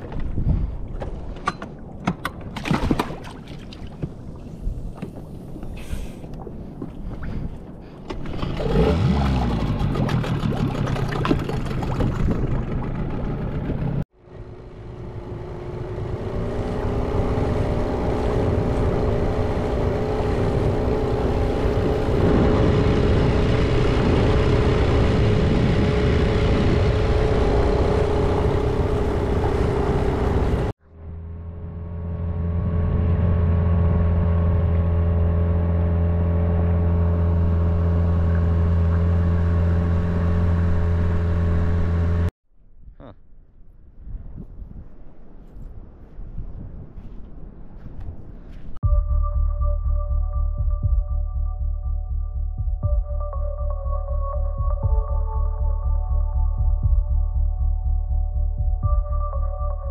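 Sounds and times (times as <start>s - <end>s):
outboard motor running: 8.1s - 42.3s.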